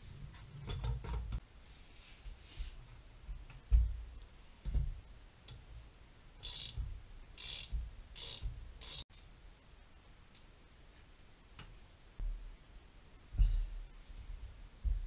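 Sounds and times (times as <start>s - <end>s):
ratchet spanner clicking: 6.4s - 6.8s, 7.4s - 9.0s.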